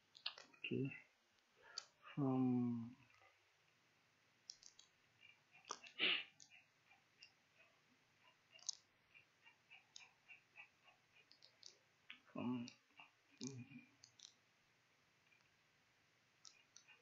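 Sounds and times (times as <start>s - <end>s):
sharp clicks: 0.0s - 0.7s, 4.5s - 4.9s, 11.2s - 12.8s, 13.4s - 14.4s
faint ticking: 4.4s - 14.5s.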